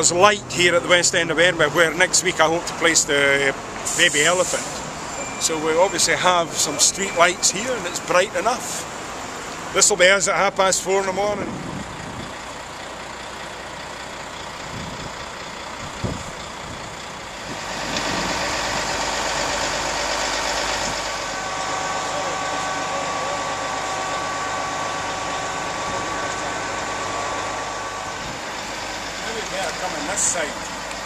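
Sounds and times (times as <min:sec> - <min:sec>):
truck engine running: 0:00.0 - 0:31.0
steady whine: 0:17.4 - 0:31.0.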